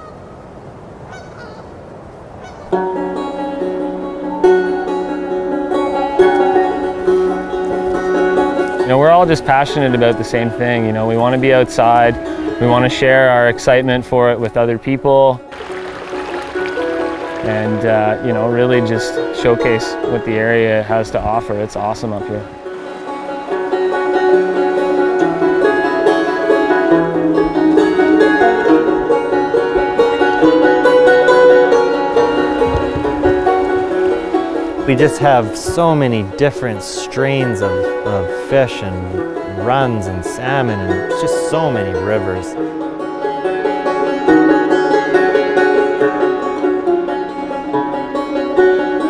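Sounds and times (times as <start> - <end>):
plucked string melody: 2.7 - 49.0
held bass line: 15.5 - 20.3.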